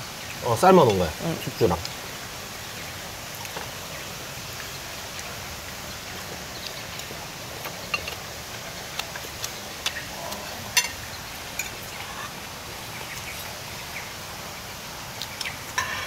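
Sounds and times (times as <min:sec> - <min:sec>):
steady background hiss: 0:00.0 - 0:16.0
cutlery clinking on plates: 0:09.9 - 0:11.0, 0:15.8 - 0:16.0.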